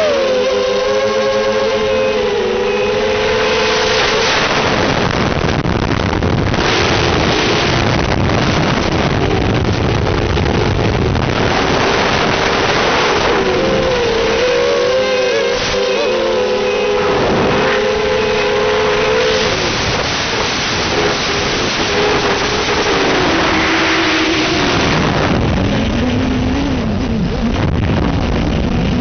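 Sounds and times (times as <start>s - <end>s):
drone motors whining: 0.0s - 29.0s.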